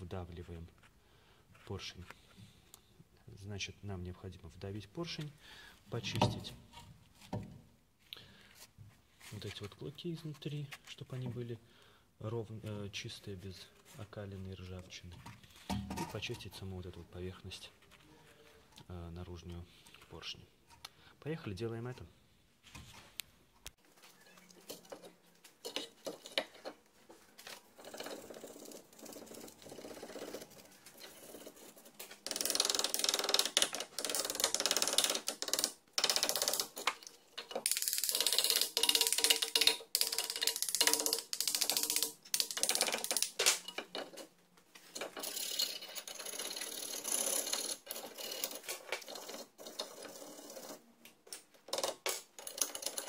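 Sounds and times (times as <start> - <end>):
hand tool scraping rust off metal: 24.4 - 26.8.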